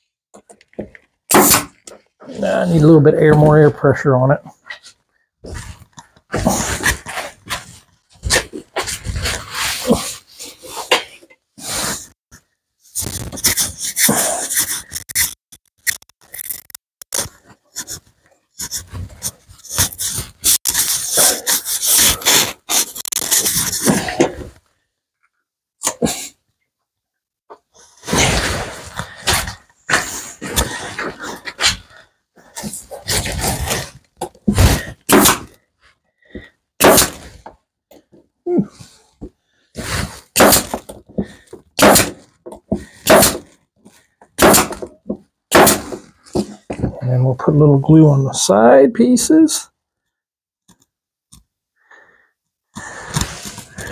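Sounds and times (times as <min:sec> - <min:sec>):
pneumatic stapler air hissing: 0:36.8 - 0:37.2, 0:40.4 - 0:40.7, 0:41.8 - 0:42.2, 0:43.0 - 0:43.4.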